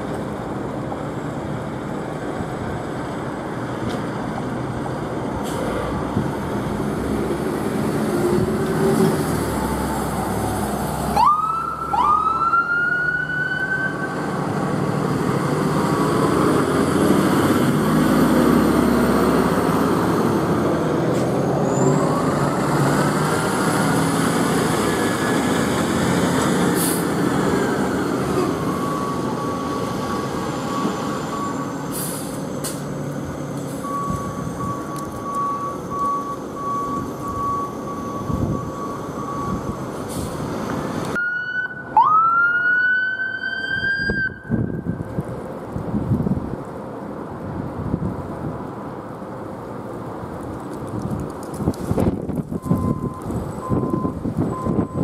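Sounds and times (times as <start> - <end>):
siren chirps: 11.1 - 14.2, 41.2 - 45.0
siren wail: 11.1 - 14.4, 41.2 - 45.1
diesel engines running: 14.0 - 41.2.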